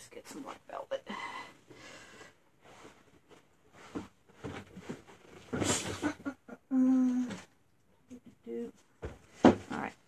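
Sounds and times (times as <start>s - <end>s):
faint knocks and handling noises: 1.6s - 6.1s, 7.2s - 10.0s.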